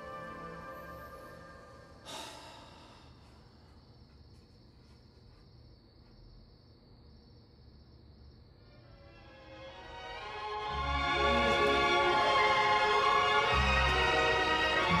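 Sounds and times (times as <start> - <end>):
soft background music: 0.0 - 2.1, 8.7 - 15.0
faint steady high tone: 0.0 - 3.6
man sighing: 2.0 - 3.4.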